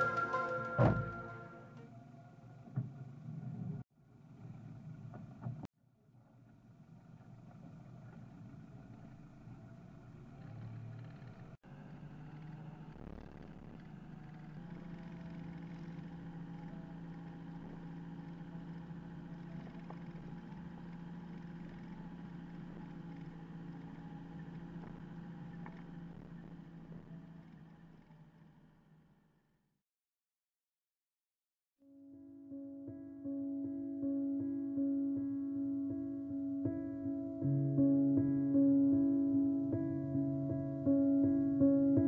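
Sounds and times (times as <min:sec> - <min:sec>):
car engine running: 0:06.7 - 0:29.2.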